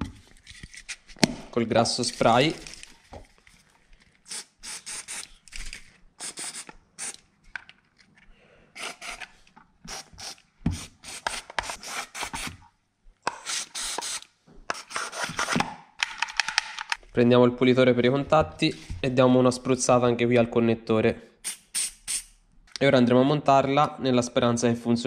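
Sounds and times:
aerosol spray hissing: 4.3 - 5.3, 6.2 - 7.2, 9.9 - 12.4.

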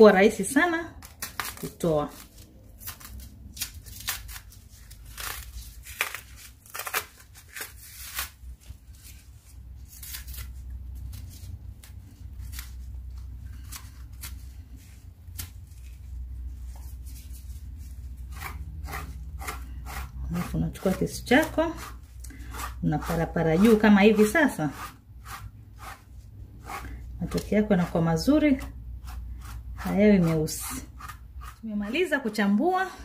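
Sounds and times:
low steady hum: 0.0 - 33.0
knife scraping peel: 1.0 - 8.4, 18.2 - 32.4.

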